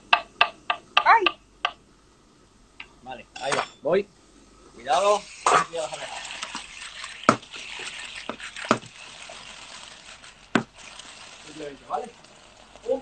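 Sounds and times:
clams sizzling in oil: 4.8s - 13.0s.

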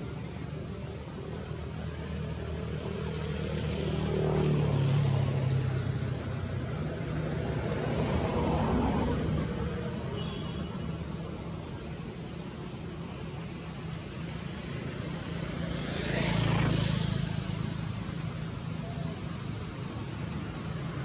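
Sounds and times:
passing traffic engine hum: 0.0s - 21.0s.

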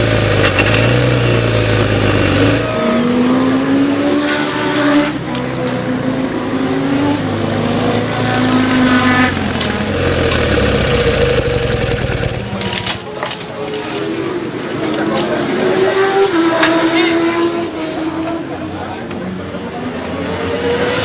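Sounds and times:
motorcycle engine running: 0.0s - 3.0s, 7.5s - 12.9s.

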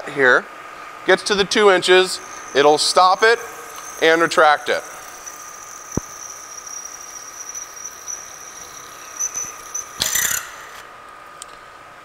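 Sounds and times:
milling machine drilling metal whine: 1.3s - 10.9s
quill clatter: 2.3s - 10.8s.

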